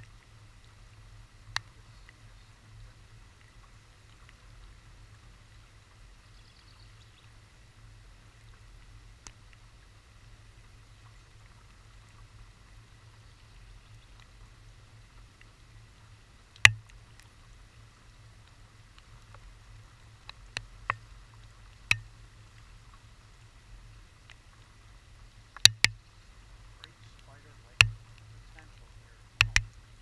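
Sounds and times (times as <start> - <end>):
faint low hum: 0.0 - 30.0
water drops striking camera: 16.6 - 17.0, 21.9 - 22.1, 25.6 - 26.0, 26.8 - 29.8.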